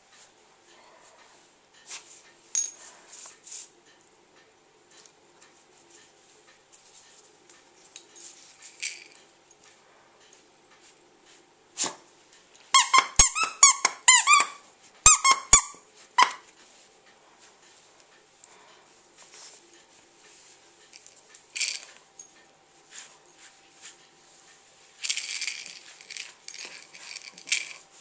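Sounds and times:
squeaky toy squeaking: 0:12.7 - 0:16.4.

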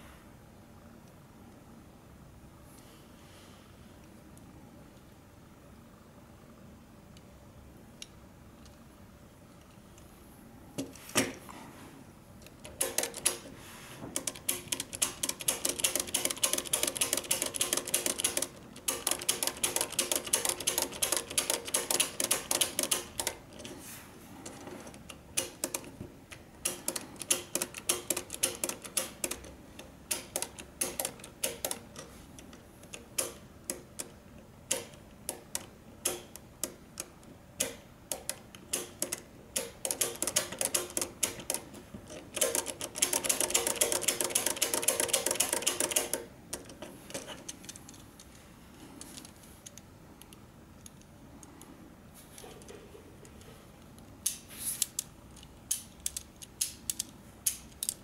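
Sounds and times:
plastic gears clicking and rattling: 0:14.2 - 0:23.8, 0:39.8 - 0:48.4, 0:54.8 - 0:58.0.

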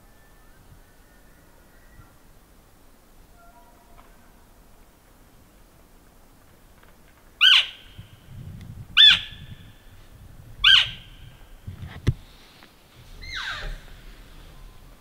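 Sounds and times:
high squealing elk calls: 0:07.4 - 0:07.8, 0:10.6 - 0:11.1, 0:13.2 - 0:13.9.

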